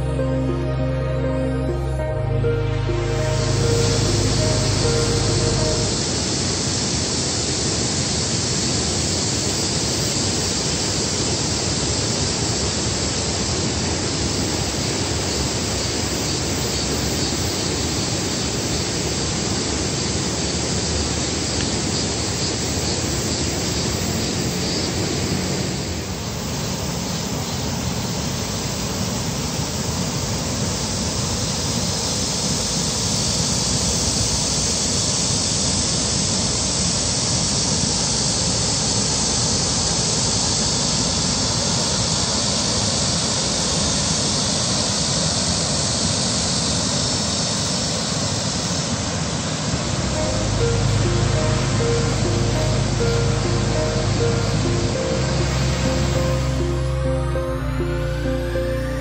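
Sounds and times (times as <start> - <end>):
loud outdoor hiss: 0.0 - 59.0.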